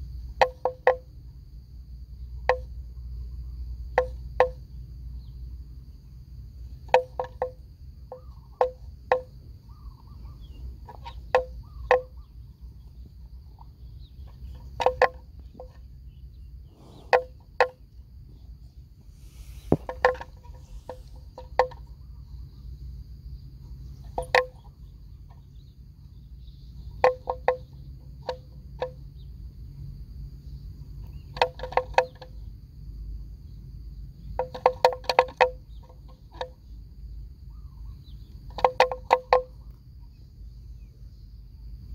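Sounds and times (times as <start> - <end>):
faint insect whine: 0.0 - 41.9.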